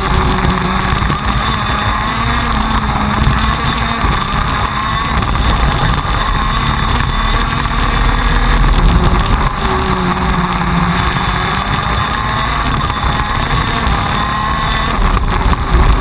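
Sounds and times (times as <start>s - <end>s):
two-stroke kart engine racing: 0.0s - 16.0s.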